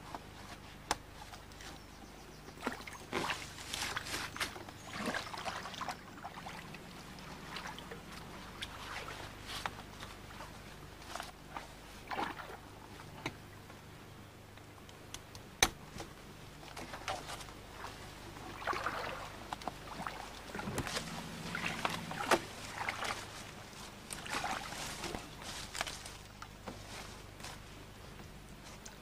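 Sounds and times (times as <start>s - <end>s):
faint low hum: 0.0s - 29.0s
branches rustling and crackling: 2.6s - 12.0s, 15.8s - 29.0s
branches snapping: 24.1s - 26.8s.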